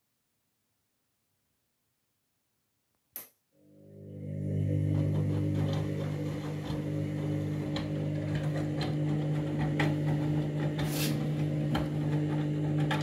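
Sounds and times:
washing machine motor humming: 3.6 - 13.0.

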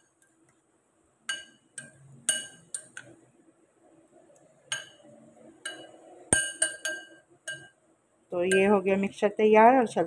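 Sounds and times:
metal spoon clinking on glass bowl: 1.3 - 3.0, 4.7 - 5.0, 5.6 - 7.8, 8.4 - 8.8.

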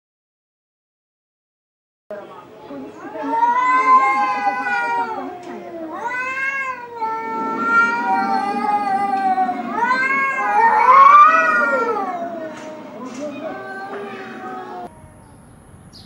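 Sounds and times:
cats yowling: 2.9 - 14.9.

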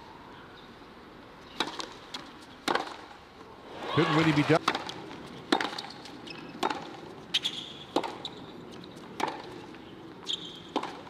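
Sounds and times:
racquet striking tennis ball: 1.6 - 3.0, 4.2 - 6.0, 6.6 - 8.3, 9.2 - 9.5, 10.3 - 11.0
tennis ball bouncing: 1.6 - 3.1, 4.2 - 11.0.

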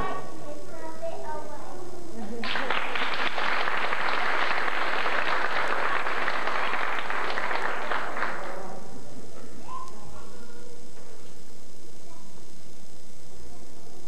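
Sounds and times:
audience clapping: 2.4 - 8.8.

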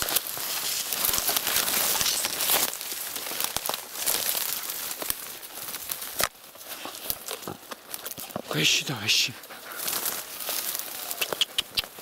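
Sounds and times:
reeds and snow crunching: 0.0 - 12.0.

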